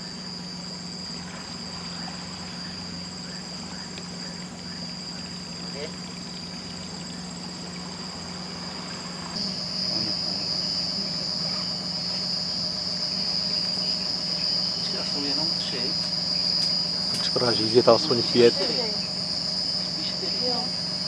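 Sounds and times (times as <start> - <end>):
insects trilling: 0.0 - 21.0
low steady hum: 0.0 - 21.0.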